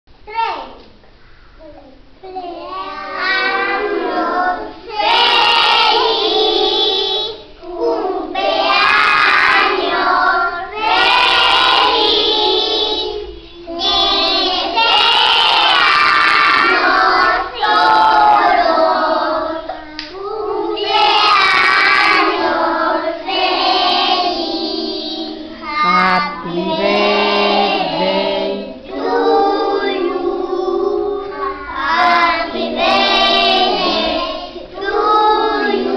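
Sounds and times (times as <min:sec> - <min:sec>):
children singing: 0:02.4 - 0:35.9.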